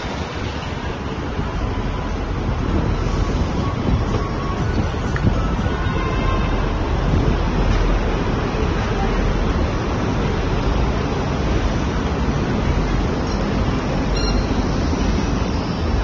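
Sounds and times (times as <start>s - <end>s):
wind buffeting microphone: 0.0s - 8.9s
vehicle rumbling: 0.0s - 16.0s.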